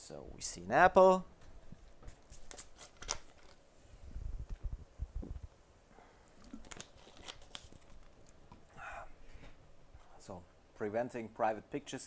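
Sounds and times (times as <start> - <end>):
soft low bumps: 4.0 - 5.5.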